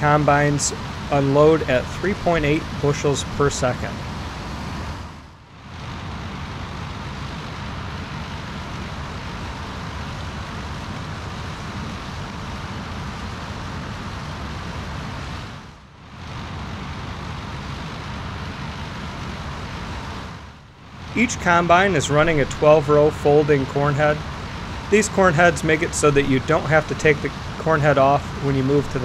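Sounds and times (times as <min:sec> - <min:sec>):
tractor engine running: 0:00.0 - 0:05.4, 0:15.6 - 0:29.0
combine harvester engine running: 0:00.0 - 0:29.0.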